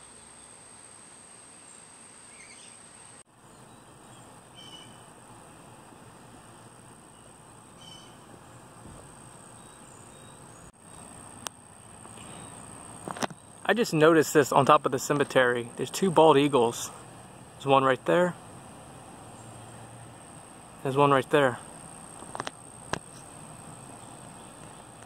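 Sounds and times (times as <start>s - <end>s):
low hiss: 0.0s - 25.0s
faint bird chirps: 1.6s - 5.1s, 7.1s - 8.2s, 9.4s - 11.1s, 12.1s - 12.7s
high-pitched insect drone: 9.4s - 25.0s.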